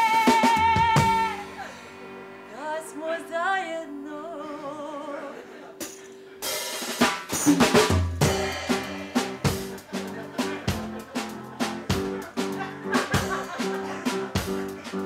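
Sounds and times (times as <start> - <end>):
drum kit fill: 0.0 - 2.5, 5.8 - 15.0.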